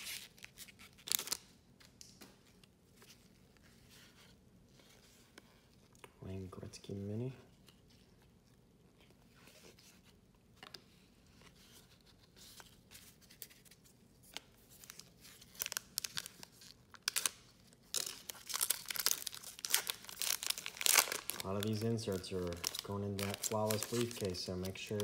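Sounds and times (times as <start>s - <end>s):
card pack wrapper crinkling and tearing: 0.0s - 1.6s, 12.4s - 25.0s
trading cards rustling: 17.9s - 25.0s.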